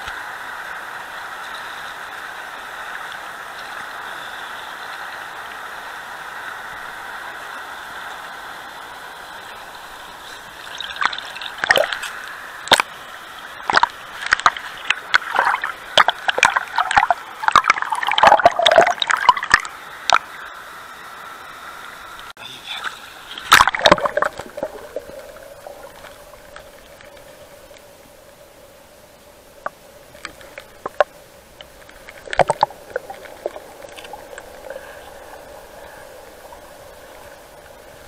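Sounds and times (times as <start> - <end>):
water slapping and splashing: 10.6 - 13.0, 13.6 - 20.3, 22.9 - 27.4, 30.1 - 38.0.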